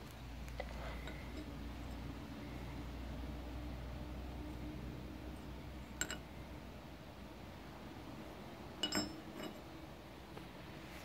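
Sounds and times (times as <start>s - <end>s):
metal key clinking on concrete: 8.8s - 9.6s.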